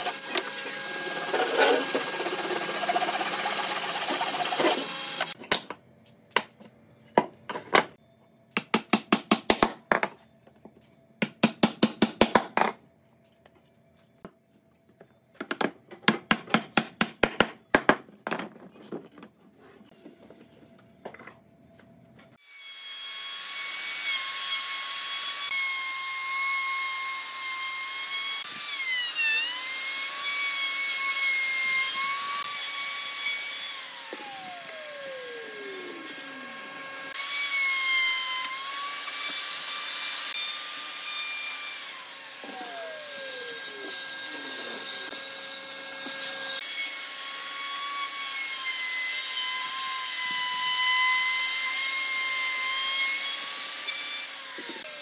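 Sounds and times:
power tool motor whine: 0.0s - 5.4s.

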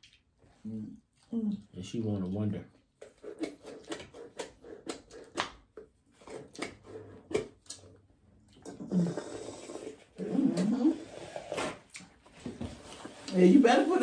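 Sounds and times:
drink sucked through a straw: 8.7s - 11.8s.

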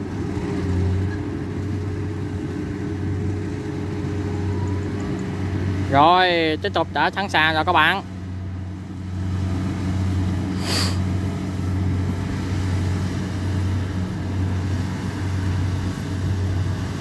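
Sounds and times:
combine harvester engine drone: 0.0s - 17.0s
brief hiss: 10.6s - 11.0s.

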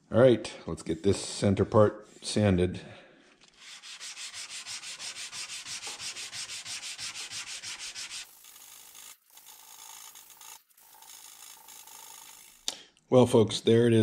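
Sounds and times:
sandpaper rubbing on steel blade: 3.5s - 9.1s.

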